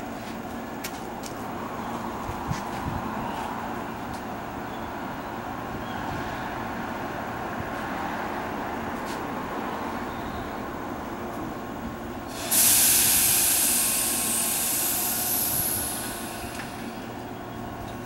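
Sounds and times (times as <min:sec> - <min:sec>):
low hum of standing train: 0:00.0 - 0:18.0
air brakes hissing: 0:12.3 - 0:17.3.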